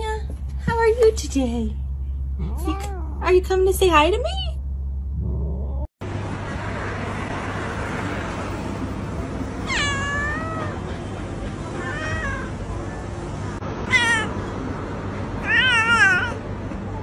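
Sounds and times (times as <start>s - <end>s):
cat meowing: 2.4s - 3.3s, 9.6s - 10.8s, 11.8s - 12.6s, 13.8s - 14.4s, 15.4s - 16.4s.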